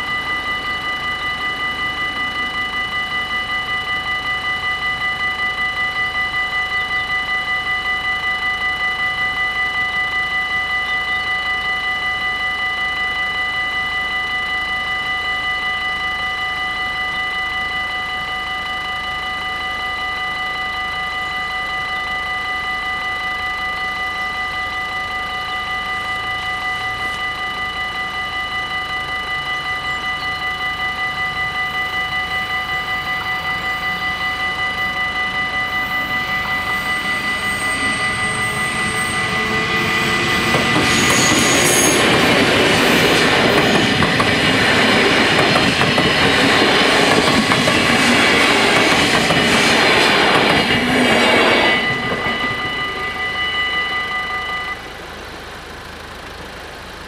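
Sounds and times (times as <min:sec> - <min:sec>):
high wheel squeals: 0:00.0 - 0:57.0
level-crossing warning bells: 0:00.0 - 0:57.0
train rushing past: 0:32.0 - 0:54.9.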